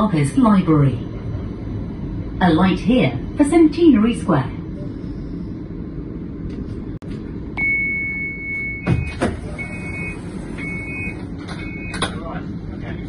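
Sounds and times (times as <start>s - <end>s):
low hum of tram: 0.0s - 13.0s
door warning beeps: 7.6s - 12.1s.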